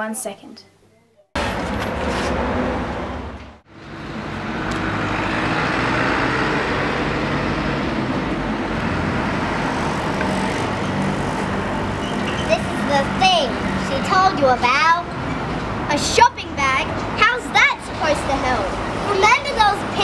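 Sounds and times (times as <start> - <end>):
street traffic passing cars: 1.4 - 20.0.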